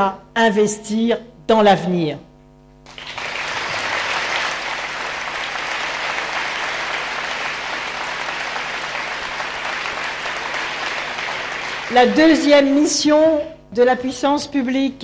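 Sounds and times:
audience applauding: 2.8s - 12.4s.

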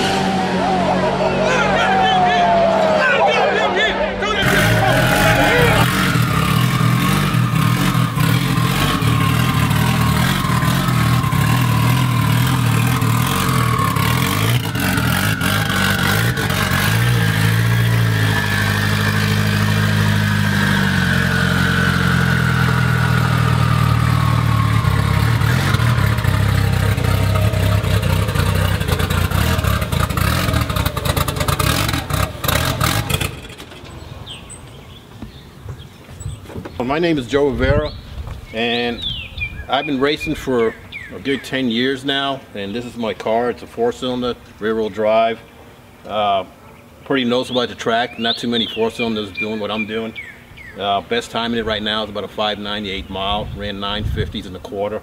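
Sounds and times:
car engine at low revs: 4.4s - 35.4s.

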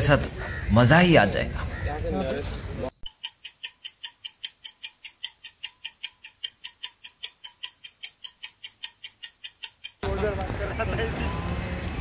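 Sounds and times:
fast clock ticking: 3.1s - 10.1s.

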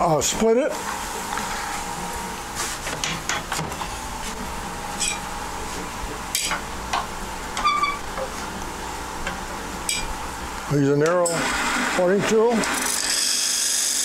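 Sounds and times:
short ringing squeaks: 7.6s - 8.0s
wood lathe whirring: 11.1s - 14.0s.

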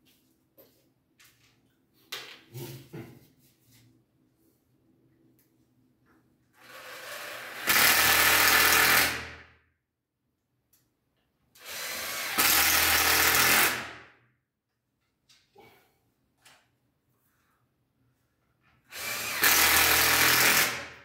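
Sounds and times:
cordless drill running: 6.6s - 9.2s, 11.6s - 13.9s, 18.9s - 21.0s.

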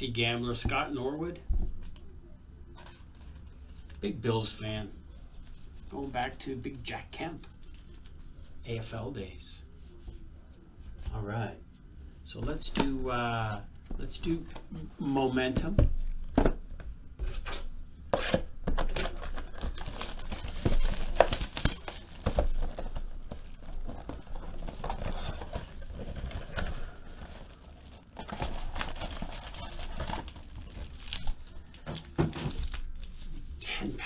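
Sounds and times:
foil packs rustling: 18.2s - 33.4s
plastic wrap crinkling and tearing: 18.2s - 33.5s.

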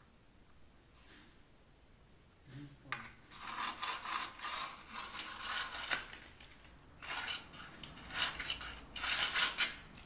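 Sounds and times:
scraping on fresh mortar: 3.3s - 6.3s, 7.0s - 9.8s.

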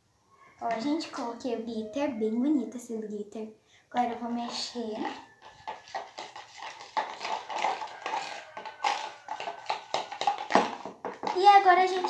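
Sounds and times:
spoon scraping plastic bowl: 4.0s - 12.0s
wet squelching slime: 4.2s - 12.0s.

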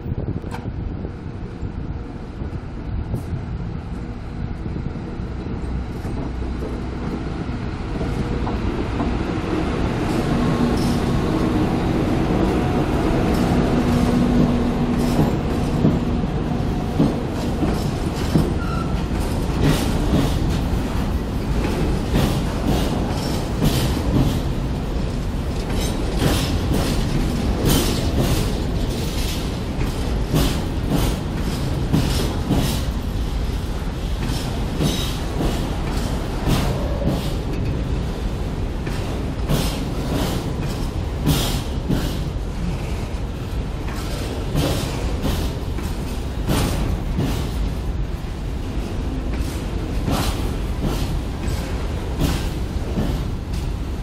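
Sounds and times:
train wheels rumbling on rails: 0.0s - 54.0s
wheels clattering over rail joints: 12.2s - 48.0s.

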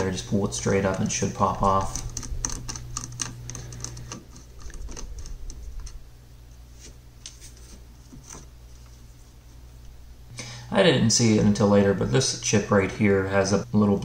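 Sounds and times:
fingers handling small parts: 0.6s - 6.0s
screwdriver clicks and ticks: 1.8s - 6.0s.

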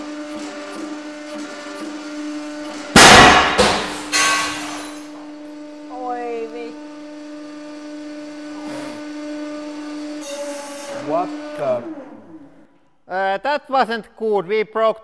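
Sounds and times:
hydraulic press hum: 0.0s - 13.0s
loud metal bang: 2.9s - 5.1s
window glass smashing: 2.9s - 5.2s.

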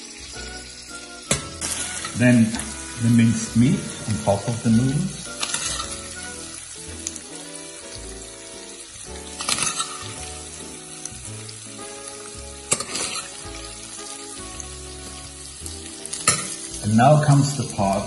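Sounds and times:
meat sizzling in a frying pan: 0.0s - 18.0s
soft background music: 0.0s - 18.0s
spoon scraping a pan: 1.3s - 4.5s, 5.3s - 6.5s, 9.3s - 10.8s, 12.1s - 15.2s.

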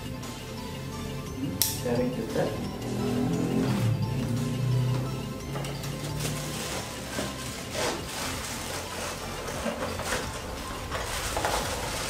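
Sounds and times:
cardboard box scraping and rustling: 6.1s - 12.0s.

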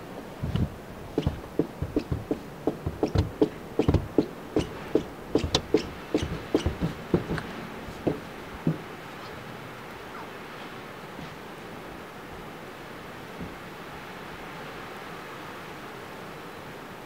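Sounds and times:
short knocks and crunches: 0.4s - 8.9s.

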